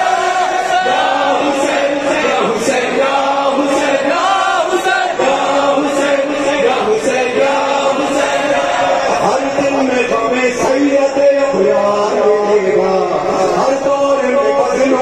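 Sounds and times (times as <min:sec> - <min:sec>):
crowd of men chanting: 0:00.0 - 0:09.9.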